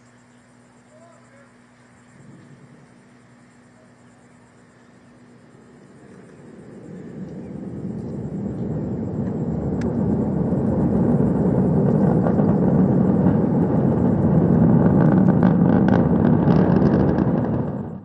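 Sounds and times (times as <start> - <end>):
crackle: 0.0 - 18.0
rocket launch rumble: 5.1 - 18.0.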